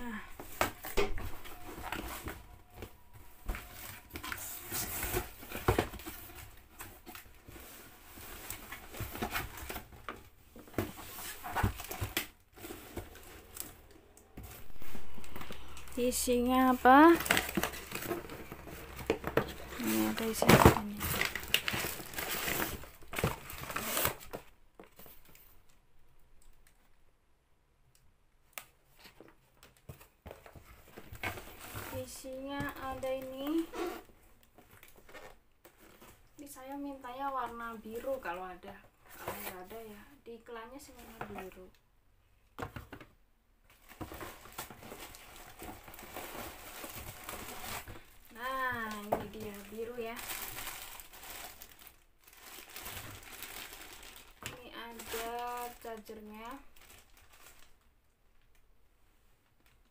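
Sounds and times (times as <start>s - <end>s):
plastic wrapping crinkling: 0.0s - 25.5s, 43.7s - 58.6s
cardboard rustling and scraping: 0.4s - 13.8s, 14.4s - 25.4s, 29.0s - 36.3s, 39.1s - 39.8s.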